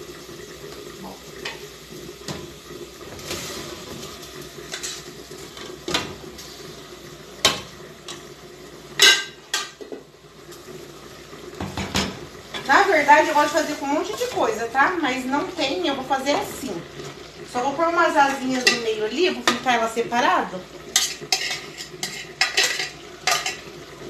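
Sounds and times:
low sizzle: 0.0s - 24.0s
cookware clanking: 9.0s - 10.0s, 18.5s - 19.6s, 20.9s - 23.7s
wooden spoon stirring pot: 20.9s - 23.6s.

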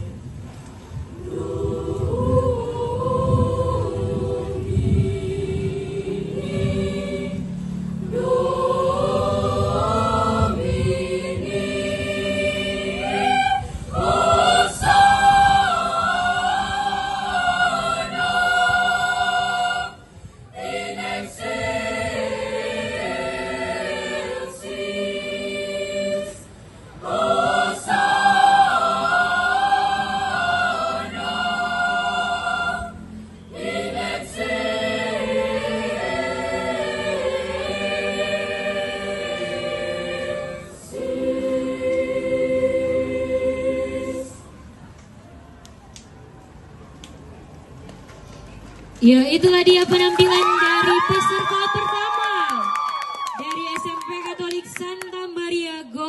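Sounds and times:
mixed choir singing in harmony: 0.9s - 44.7s.

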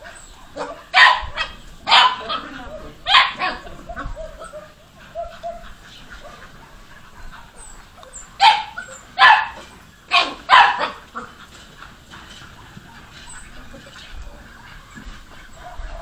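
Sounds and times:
dog barking: 0.6s - 7.6s, 8.4s - 11.2s, 15.6s - 16.0s.

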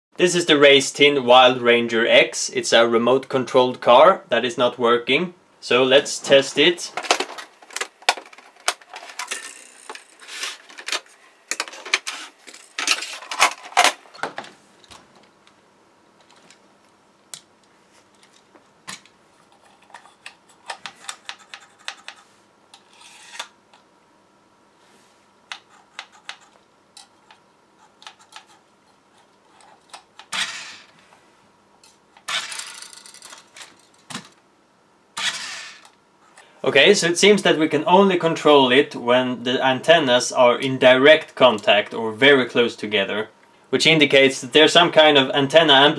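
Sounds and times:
plastic toy clicking and clattering: 7.0s - 14.0s, 18.2s - 22.2s, 32.2s - 34.3s
toy car motor whirring: 9.2s - 10.5s, 22.9s - 23.5s, 29.6s - 30.9s, 32.3s - 33.4s, 35.2s - 35.9s.

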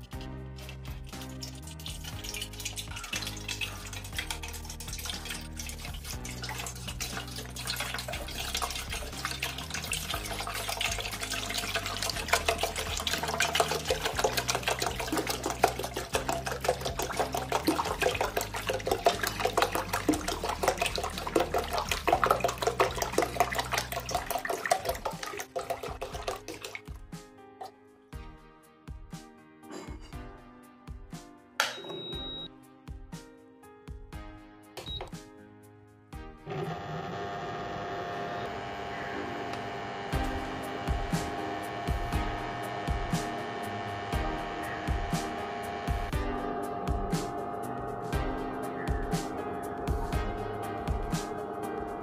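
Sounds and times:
water pouring into a metal pot: 0.0s - 27.1s, 40.2s - 45.4s.

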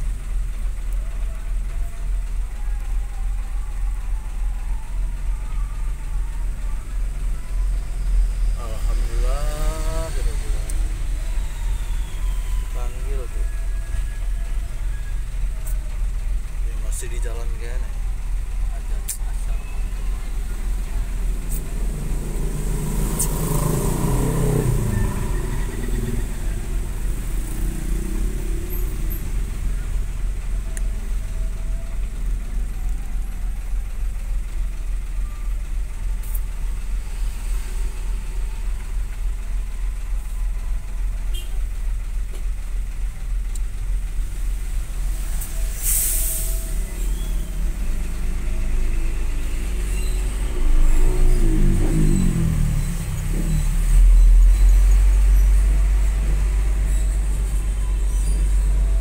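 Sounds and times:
vehicle engine drone from cab: 0.0s - 59.0s
short hiss: 45.4s - 46.8s.

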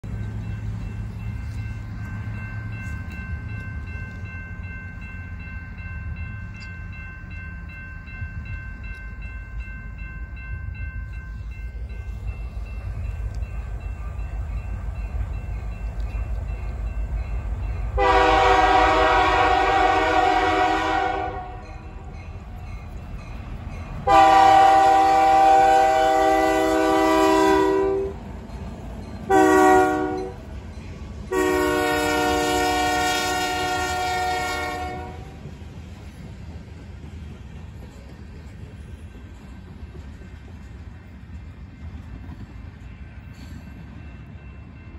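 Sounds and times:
diesel locomotive engine rumble: 0.0s - 44.9s
train air horn blasts: 18.0s - 21.8s, 24.0s - 28.2s, 29.3s - 30.4s, 31.3s - 35.4s.

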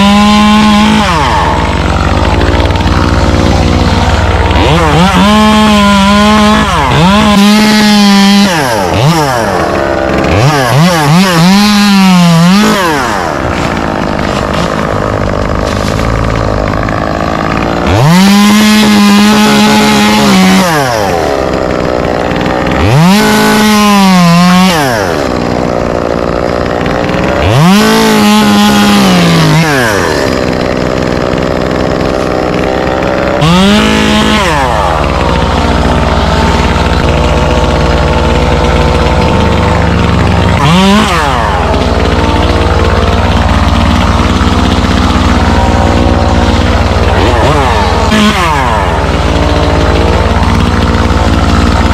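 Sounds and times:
chainsaw revving: 0.0s - 51.9s
low engine rumble: 0.4s - 8.2s, 30.3s - 51.9s.

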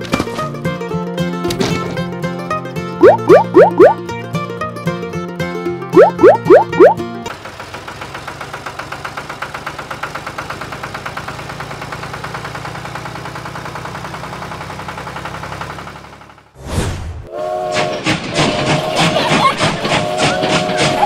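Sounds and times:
tractor engine chugging: 7.3s - 16.5s.

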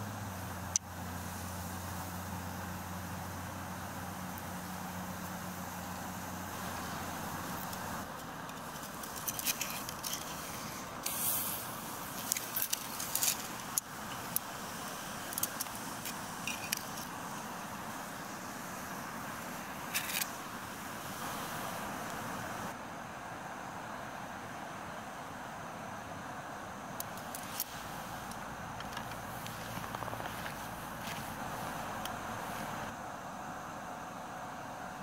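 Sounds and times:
scallops sizzling on grill: 0.5s - 22.2s
sharp pops and crackles: 4.2s - 20.5s, 27.0s - 32.9s.

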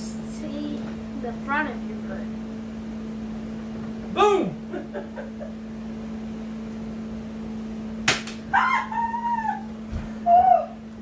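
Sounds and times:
high-pitched yelps: 8.5s - 9.7s, 10.3s - 10.8s.

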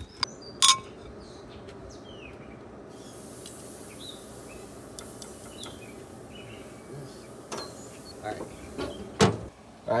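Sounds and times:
birds chirping: 0.0s - 10.0s
steak sizzling on grill: 2.9s - 9.2s.

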